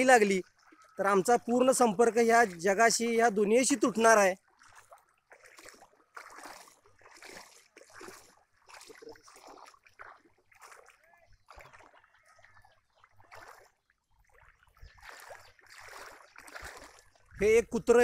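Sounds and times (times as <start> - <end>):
wading through shallow water: 0.0 - 18.0.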